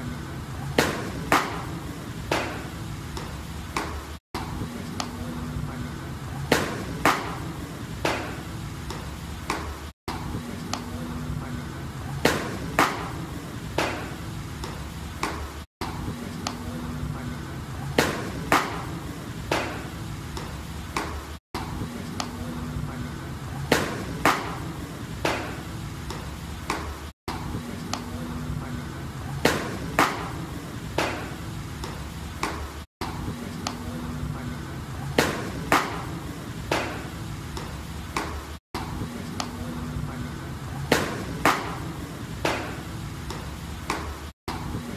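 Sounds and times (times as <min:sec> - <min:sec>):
baseballs smacking into mitts: 0:00.8 - 0:04.0, 0:06.5 - 0:09.8, 0:12.2 - 0:16.6, 0:18.0 - 0:21.2, 0:23.7 - 0:27.0, 0:29.4 - 0:33.8, 0:35.2 - 0:38.4, 0:40.9 - 0:44.2.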